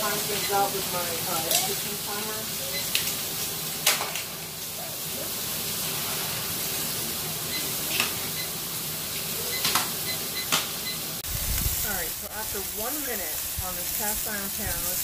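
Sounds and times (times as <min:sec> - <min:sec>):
steak sizzling in a pan: 0:00.0 - 0:15.0
microwave keypad beeps: 0:00.2 - 0:00.8, 0:02.7 - 0:03.0, 0:07.5 - 0:08.6, 0:09.4 - 0:11.1.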